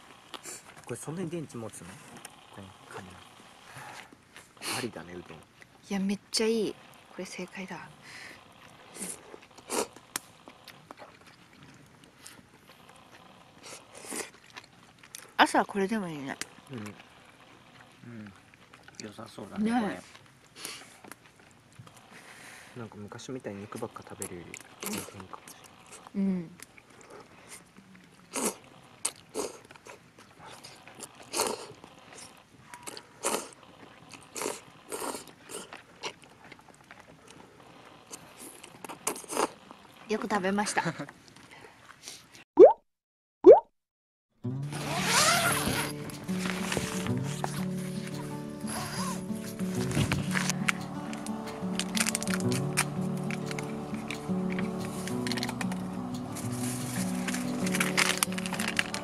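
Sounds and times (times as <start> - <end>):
chewing with small clicks: 8.6 - 15.4, 16.4 - 22.2, 23.7 - 40.2
noodles being slurped: 23.7 - 26.1, 26.8 - 40.1, 44.9 - 59.0.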